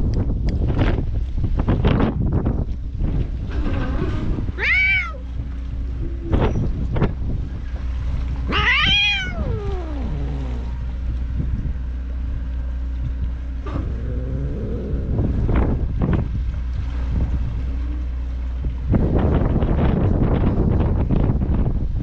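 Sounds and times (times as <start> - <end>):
low rumble: 0.0 - 22.0
cat meowing: 4.6 - 5.2, 8.5 - 10.7.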